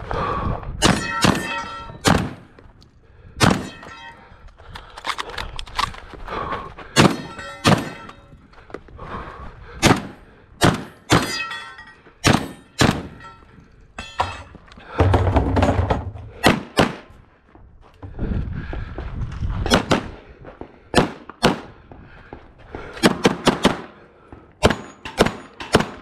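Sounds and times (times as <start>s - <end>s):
gunshots: 0.8s - 2.5s, 3.4s - 4.0s, 7.0s - 8.2s, 9.8s - 11.5s, 12.2s - 13.2s, 16.4s - 17.1s, 19.7s - 20.2s, 20.9s - 21.8s, 23.0s - 24.0s, 24.6s - 26.0s.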